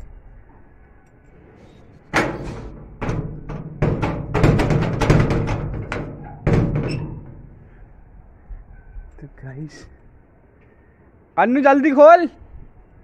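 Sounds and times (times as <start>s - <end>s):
banging on a door: 2.1s - 7.6s.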